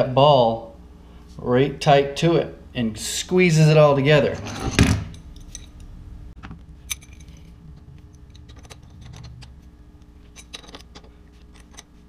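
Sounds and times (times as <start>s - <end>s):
low steady hum: 0.0s - 12.0s
metal clicks and clinks: 5.1s - 5.9s, 6.9s - 7.5s, 8.1s - 9.6s, 10.3s - 12.0s.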